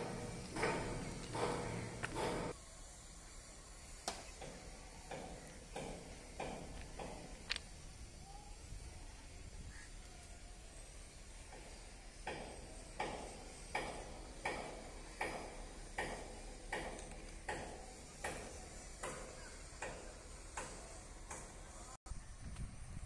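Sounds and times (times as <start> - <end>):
footsteps crunching on gravel: 0.1 - 2.5.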